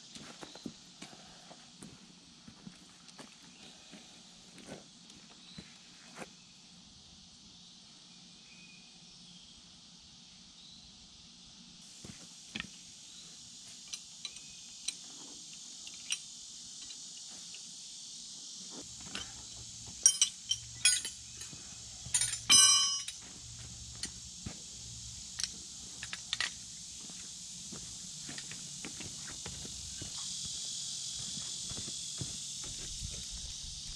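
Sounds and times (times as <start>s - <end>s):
insects droning: 0.0s - 33.9s
metal clinks of tools: 20.0s - 23.3s.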